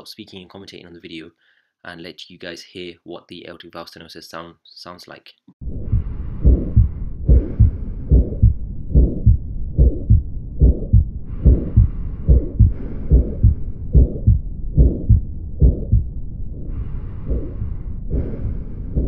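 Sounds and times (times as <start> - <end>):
heartbeat through stethoscope: 5.6 - 19.0
whooshing heart murmur: 5.6 - 19.0.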